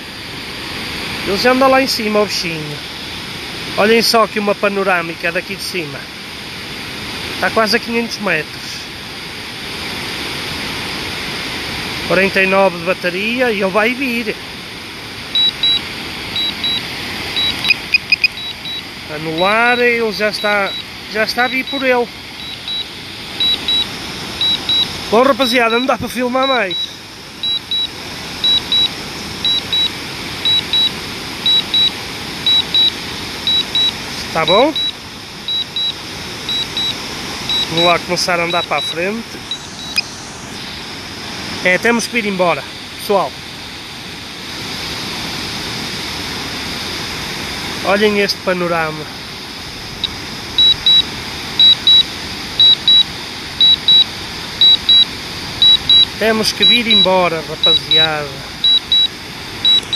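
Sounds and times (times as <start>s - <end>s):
steady rushing noise: 0.0s - 59.9s
high-pitched warning beeps: 15.3s - 41.0s, 50.0s - 59.9s.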